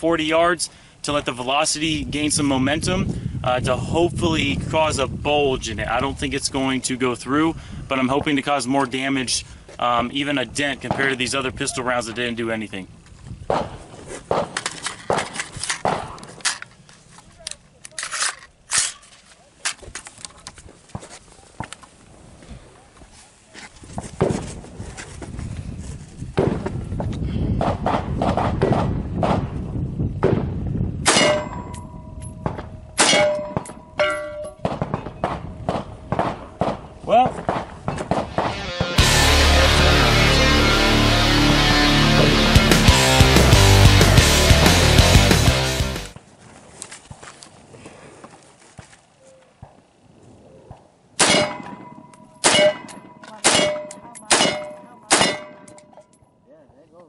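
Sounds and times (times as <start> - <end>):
rifle shots: 27.6 - 29.6, 30.2 - 31.8, 51.2 - 55.8
bullets clanging on steel plate: 31.1 - 32.4, 33.0 - 35.1, 51.2 - 56.2.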